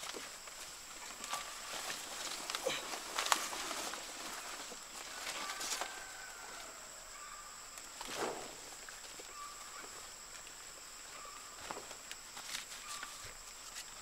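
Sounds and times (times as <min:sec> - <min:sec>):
faint bird calls: 0:01.0 - 0:08.2, 0:09.2 - 0:10.2, 0:11.0 - 0:11.8, 0:12.7 - 0:13.5.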